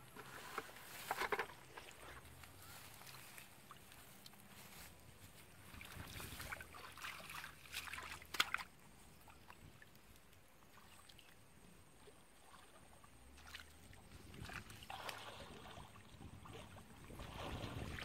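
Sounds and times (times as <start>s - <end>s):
hands splashing in muddy water: 5.6s - 9.5s, 13.4s - 18.0s.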